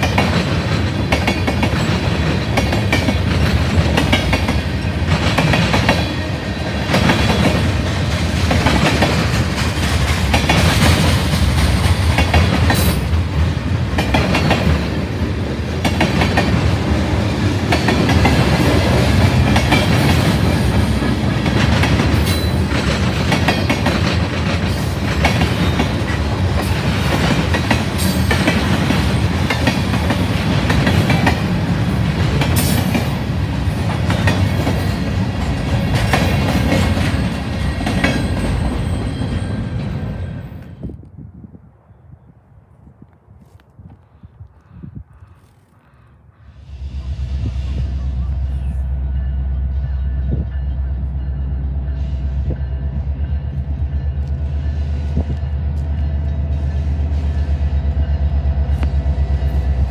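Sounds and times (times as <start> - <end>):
freight train wheels clacking: 0.0 - 40.8.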